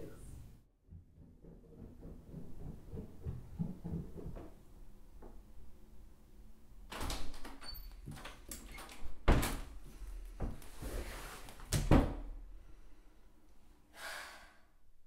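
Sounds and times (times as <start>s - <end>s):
door opening and shutting: 6.9s - 9.8s.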